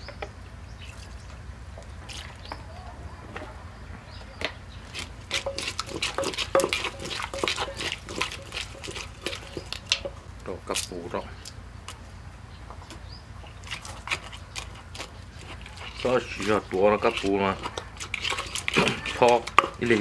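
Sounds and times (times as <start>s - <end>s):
spoon scraping in a clay mortar: 4.8s - 10.2s, 13.4s - 20.0s.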